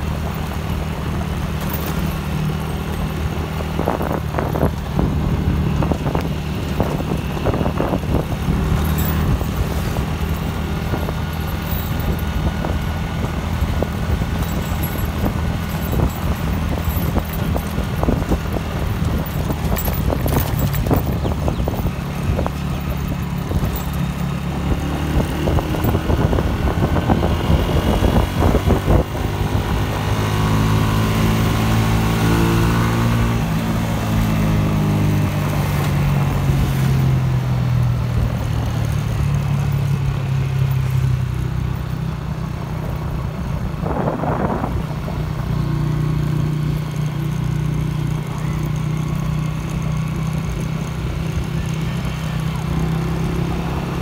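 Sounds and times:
motorcycle engine running: 0.0s - 54.0s
tyre noise: 0.0s - 54.0s
wind noise: 3.2s - 37.0s, 42.7s - 45.9s.

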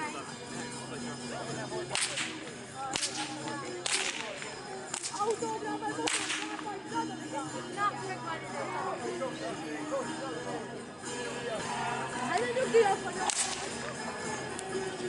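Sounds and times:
whip cracking: 1.9s - 5.4s, 6.0s - 6.6s, 13.2s - 13.9s.

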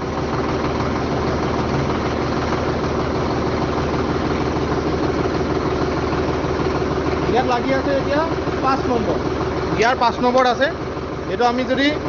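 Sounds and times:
tractor diesel engine idling: 0.0s - 12.0s.

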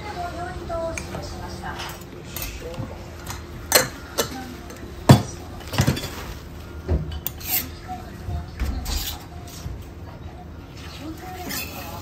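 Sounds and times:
metal spatulas clanking and scraping: 7.1s - 7.8s, 8.8s - 9.3s, 11.4s - 12.0s.

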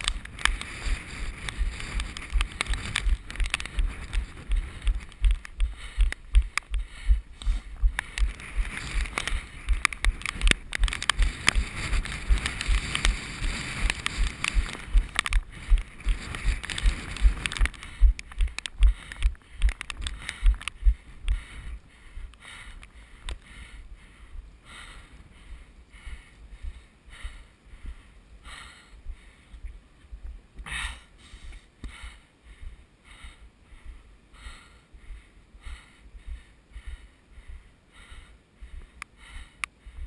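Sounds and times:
rustling: 0.0s - 23.5s
running footsteps: 0.0s - 30.4s
soft regular sounds: 0.0s - 40.0s.

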